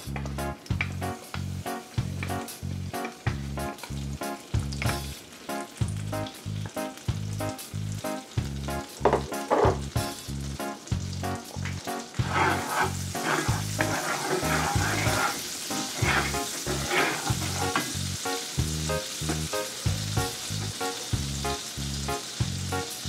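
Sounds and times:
background music with steady beat: 0.0 - 12.4
butter sizzling in frying pan: 0.0 - 23.0
wooden spatula stirring: 12.1 - 18.0.

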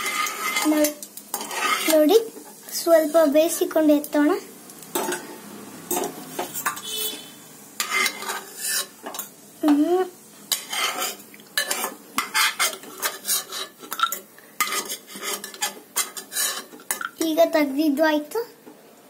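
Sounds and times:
metal spoon scraping pot: 0.0 - 2.1, 7.8 - 9.2, 10.5 - 17.1.

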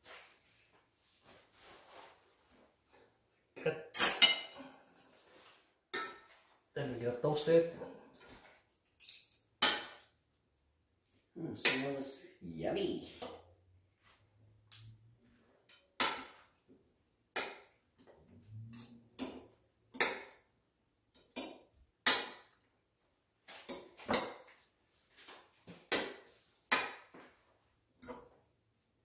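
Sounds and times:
fork clinking on ceramic plate: 4.0 - 4.6.

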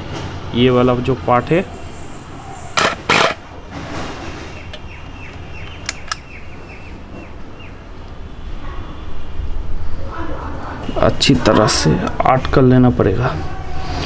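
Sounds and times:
bird chirping: 4.4 - 10.0
sharp clicks: 4.7 - 6.4.

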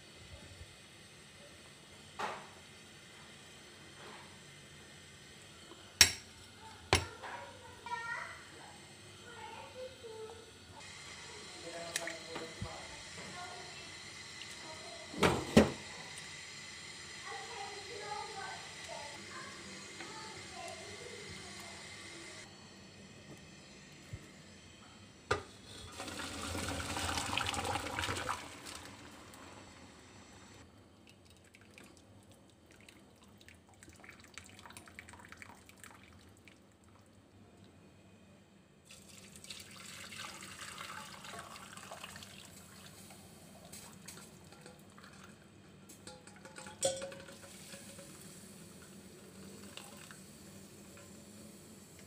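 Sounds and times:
liquid splashing pour: 25.9 - 29.1, 31.0 - 36.6, 38.9 - 45.4, 49.3 - 50.3.

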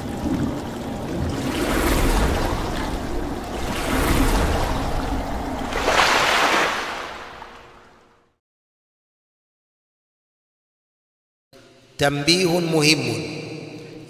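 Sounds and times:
rushing noise like surf: 0.0 - 7.9
low rumble: 0.0 - 8.1.

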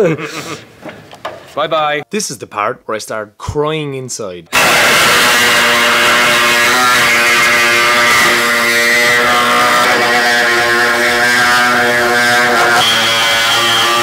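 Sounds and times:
air-powered cutting tool buzzing: 4.5 - 14.0.

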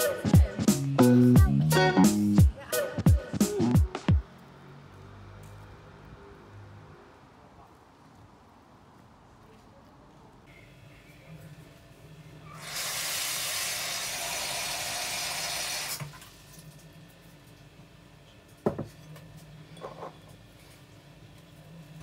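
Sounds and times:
kitchen tap running: 12.6 - 16.1.

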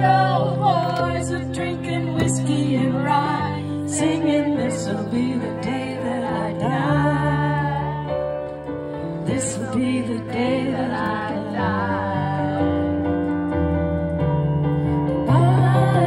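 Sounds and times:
woman singing: 0.0 - 8.5, 9.2 - 13.1, 15.2 - 16.0
held keyboard chords: 0.0 - 16.0.

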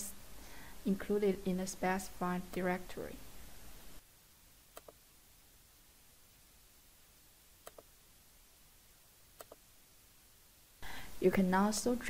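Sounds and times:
computer mouse clicking: 4.7 - 5.0, 7.6 - 7.9, 9.4 - 9.6.

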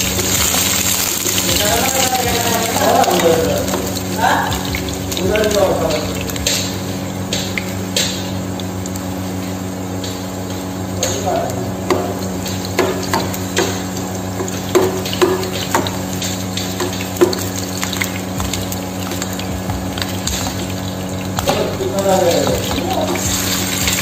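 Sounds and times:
oil sizzling in a pan: 0.0 - 24.0.

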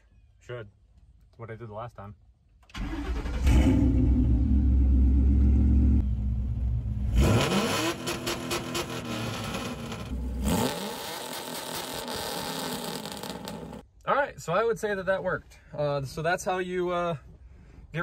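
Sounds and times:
car engine revving: 3.0 - 13.8.

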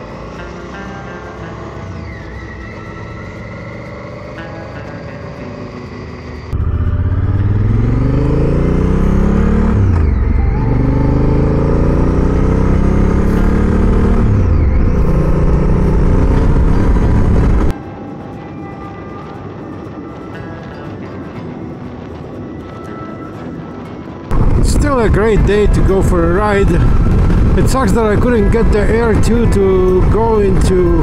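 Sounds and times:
motorcycle engine accelerating: 0.0 - 17.7, 24.2 - 31.0
road and wind noise: 0.0 - 31.0.

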